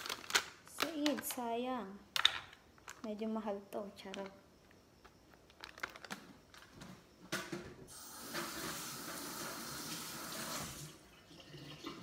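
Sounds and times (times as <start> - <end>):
plastic bag crinkling: 0.0 - 1.6, 2.2 - 3.3, 5.0 - 6.9
kitchen tap running: 7.9 - 12.0.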